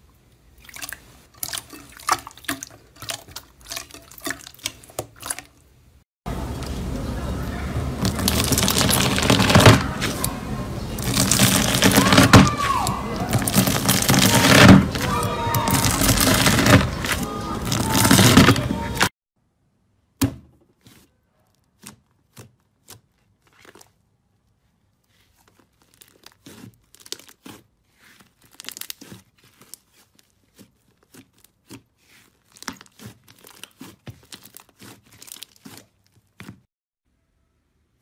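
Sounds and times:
slime crackling and popping: 0:08.0 - 0:10.3, 0:10.9 - 0:18.6, 0:25.4 - 0:36.5.

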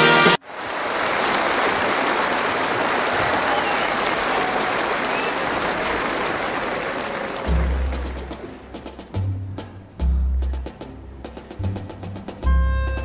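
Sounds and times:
audience applause: 0:00.4 - 0:09.0.

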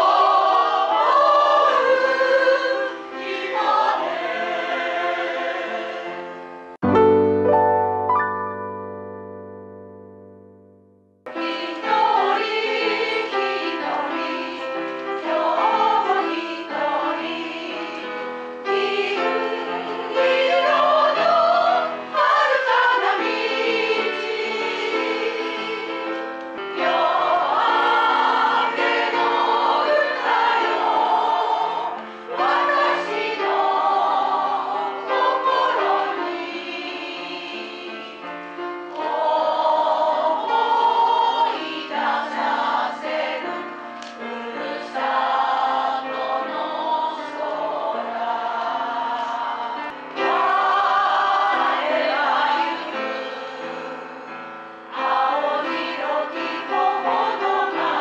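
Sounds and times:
choir singing: 0:00.0 - 0:08.1, 0:11.3 - 0:58.0.

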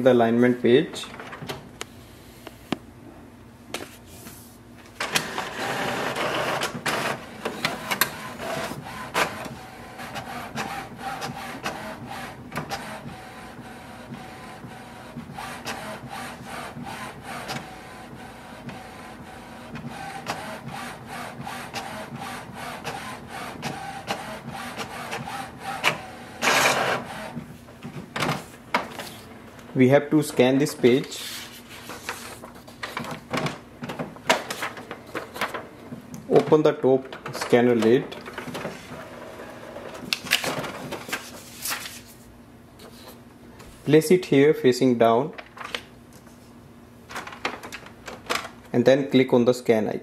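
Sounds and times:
inkjet printer printing: 0:05.0 - 0:31.2, 0:31.8 - 0:41.5.

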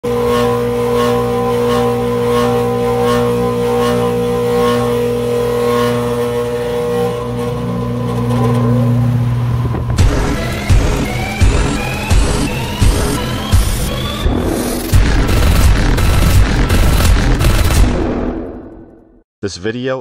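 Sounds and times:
fan motor humming: 0:00.0 - 0:18.0
motor whine rising in pitch: 0:00.0 - 0:18.9
fan blades swishing: 0:04.8 - 0:17.6.

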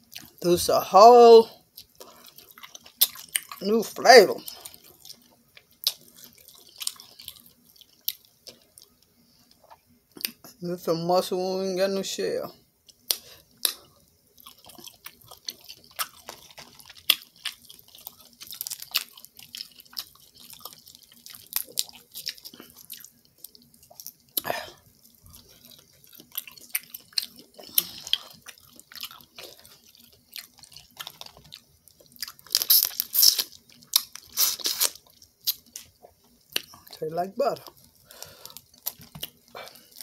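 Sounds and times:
faint steady hum: 0:00.0 - 0:40.0
wet chewing and smacking: 0:01.6 - 0:03.7, 0:04.4 - 0:10.5, 0:12.8 - 0:37.0, 0:37.6 - 0:40.0
shells crackling while peeled: 0:12.9 - 0:40.0.

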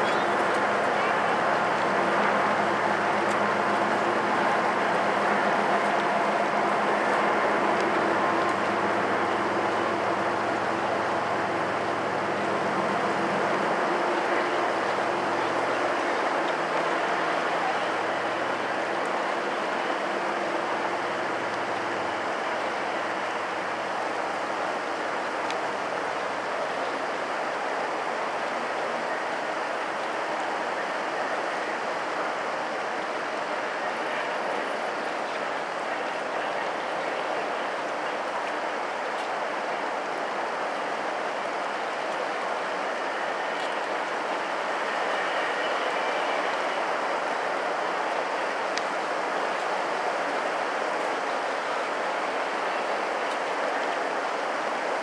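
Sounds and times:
distant freight train passing: 0:00.0 - 0:55.0
train wheels on rails: 0:00.0 - 0:55.0.

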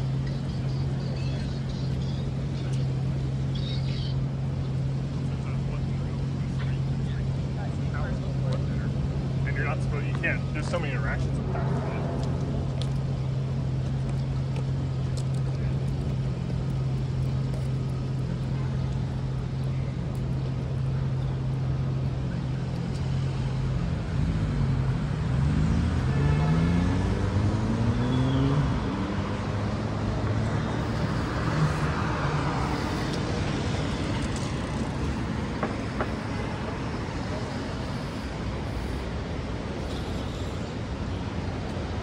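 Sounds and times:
traffic noise: 0:00.0 - 0:42.0
vehicle engine revving: 0:20.2 - 0:42.0.

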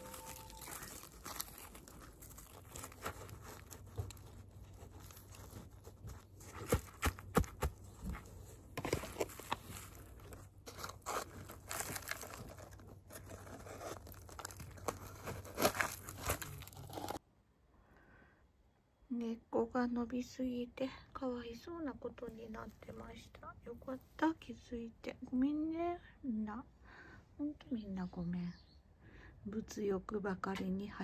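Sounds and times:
soil rustling and crunching: 0:00.0 - 0:17.2.

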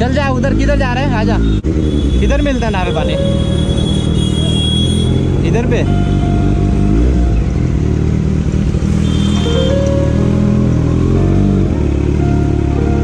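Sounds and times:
motorcycle engine running: 0:00.0 - 0:13.0
background music: 0:05.5 - 0:08.6, 0:09.4 - 0:13.0.

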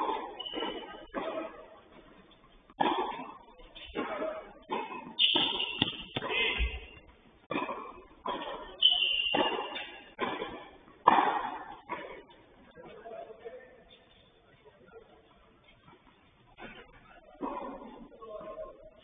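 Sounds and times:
racket hitting tennis ball: 0:00.0 - 0:01.7, 0:02.7 - 0:12.2
ball bouncing on court: 0:00.0 - 0:02.1, 0:02.7 - 0:12.3
shoe squeaks: 0:00.1 - 0:01.5, 0:05.0 - 0:07.1, 0:08.4 - 0:10.1.

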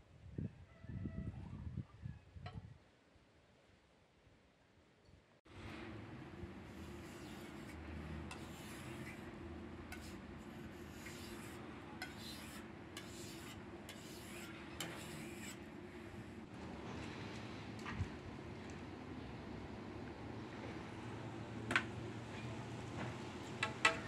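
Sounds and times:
knife scraping on whetstone: 0:06.7 - 0:16.3.

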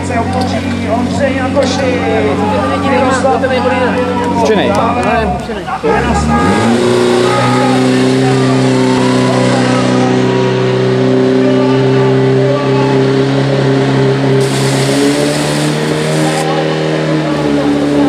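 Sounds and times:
pump engine running hard: 0:06.2 - 0:18.0
broad hiss: 0:14.4 - 0:16.4.

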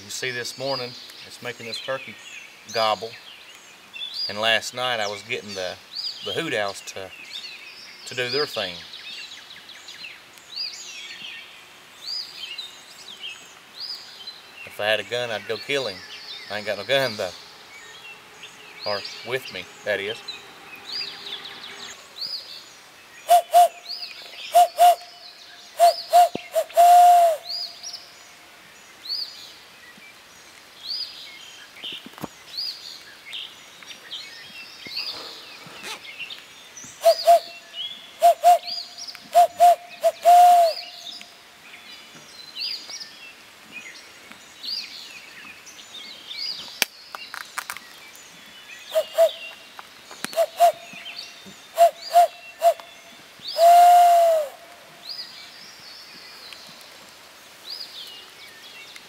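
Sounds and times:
songbirds chirping: 0:00.0 - 0:59.0
owl hoots imitated with hands: 0:23.3 - 0:23.8, 0:24.5 - 0:25.1, 0:25.8 - 0:27.5, 0:37.0 - 0:37.5, 0:38.2 - 0:38.7, 0:39.3 - 0:40.9, 0:48.9 - 0:49.4, 0:50.4 - 0:50.8, 0:51.8 - 0:52.8, 0:53.6 - 0:54.6.

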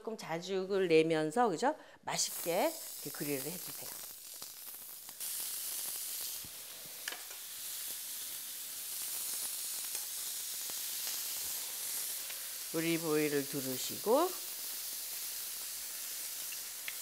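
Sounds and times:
meat sizzling on a grill pan: 0:02.2 - 0:17.0.

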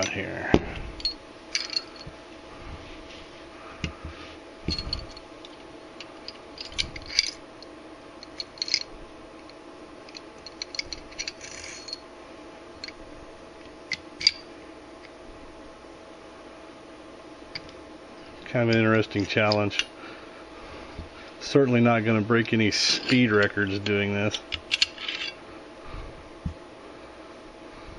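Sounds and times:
steady low hum: 0:00.0 - 0:27.9
pistol parts clicking and clinking: 0:08.2 - 0:08.9, 0:22.9 - 0:25.4.

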